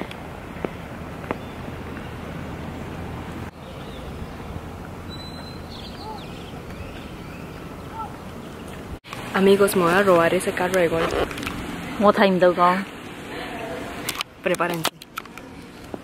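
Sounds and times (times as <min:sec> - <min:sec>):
bird chirps: 0:05.1 - 0:08.0.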